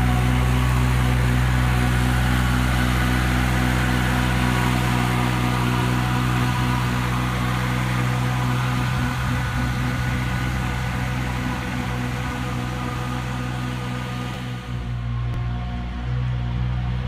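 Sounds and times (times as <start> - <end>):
mini loader engine running: 0.0 - 17.0.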